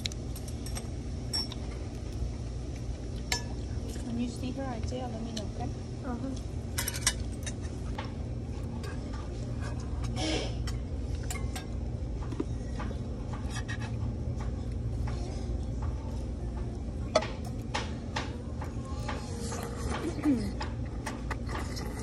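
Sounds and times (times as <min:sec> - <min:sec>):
low room hum: 0:00.0 - 0:22.0.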